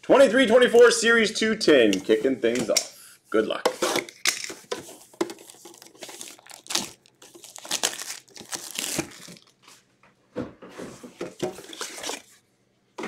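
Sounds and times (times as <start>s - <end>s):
plastic shrink wrap crinkling and tearing: 4.8s - 9.6s, 11.6s - 12.3s.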